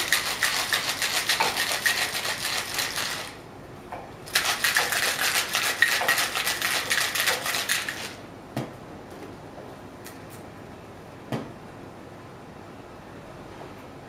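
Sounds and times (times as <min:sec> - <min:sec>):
ice rattling in cocktail shaker: 0:00.0 - 0:03.4, 0:04.3 - 0:08.2.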